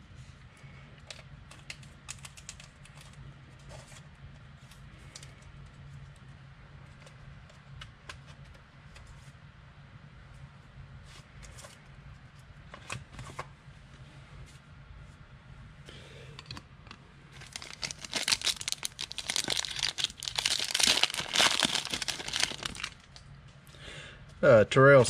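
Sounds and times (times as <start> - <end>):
wrapper crinkling: 17.3 - 23.2.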